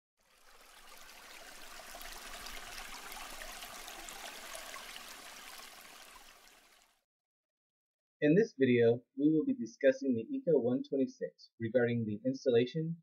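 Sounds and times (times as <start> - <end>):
running water rushing and splashing: 0.2 - 7.0.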